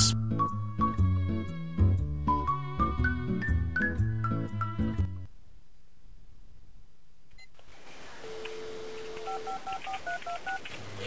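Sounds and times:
telephone dial tone: 0:08.3 - 0:10.6
touch-tone keypad beeps: 0:08.3 - 0:10.6.

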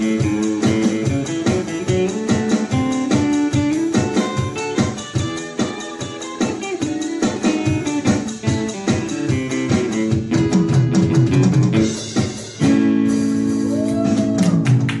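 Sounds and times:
acoustic guitars playing: 0:00.0 - 0:15.0.

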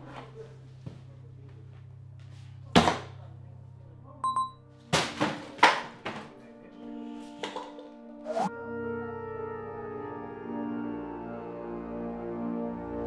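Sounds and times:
low music drone: 0:06.3 - 0:13.0.

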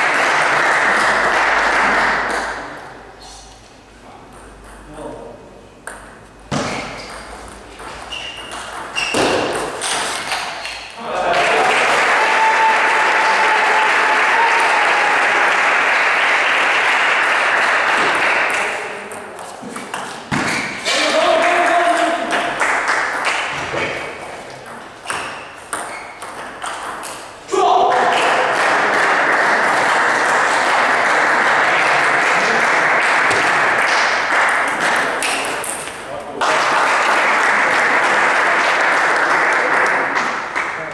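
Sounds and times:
spectators applauding: 0:00.0 - 0:02.7, 0:11.1 - 0:19.0, 0:21.1 - 0:23.5, 0:27.9 - 0:35.3, 0:36.4 - 0:40.9.

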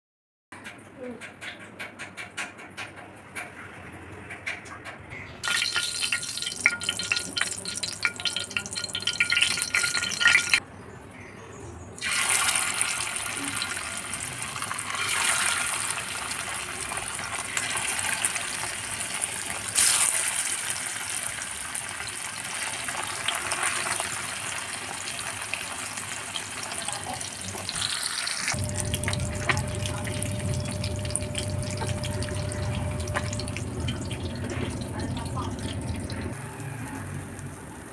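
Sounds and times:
fish sizzling in hot oil: 0:05.4 - 0:10.6, 0:12.0 - 0:36.1
low steady hum: 0:28.6 - 0:36.4.

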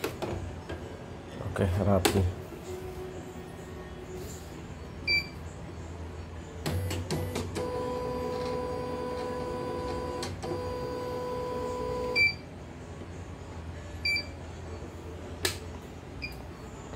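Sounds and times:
embroidery machine motor whine: 0:07.6 - 0:12.4.

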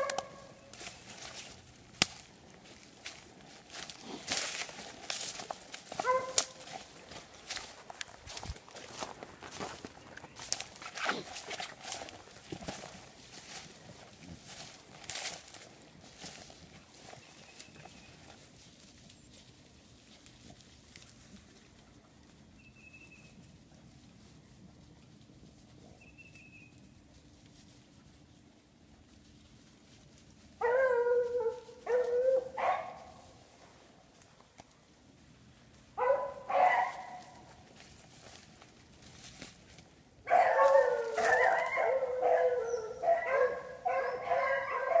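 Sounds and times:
rustling in dry leaves: 0:00.0 - 0:45.0
beagles baying and howling: 0:04.5 - 0:09.0, 0:30.6 - 0:33.4, 0:36.0 - 0:37.6, 0:40.2 - 0:45.0
dog whining: 0:40.6 - 0:44.8.

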